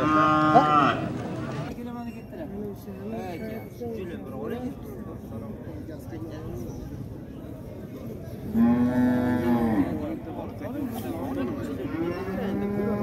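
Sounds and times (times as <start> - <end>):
cow mooing: 0.0 - 1.7.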